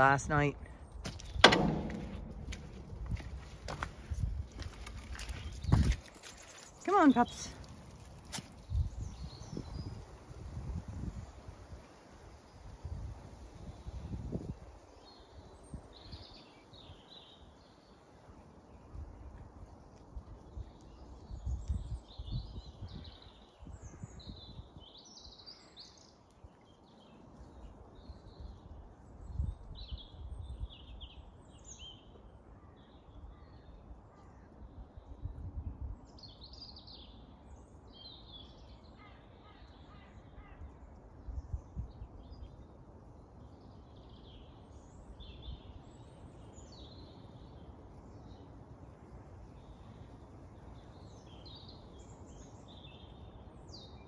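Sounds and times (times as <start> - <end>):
low rumbles: 0.0 - 6.0
songbirds singing: 0.0 - 54.0.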